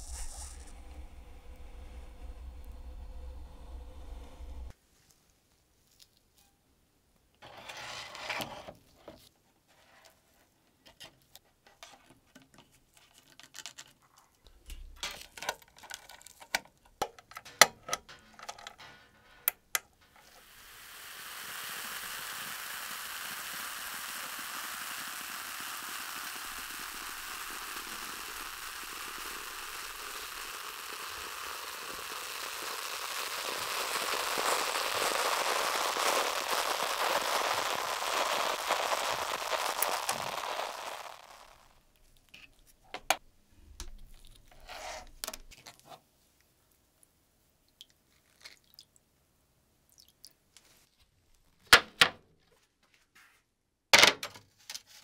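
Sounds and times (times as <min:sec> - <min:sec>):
steady hiss: 0:00.0 - 0:05.1, 0:17.4 - 0:43.6
hard objects clicking and knocking: 0:14.5 - 0:20.2.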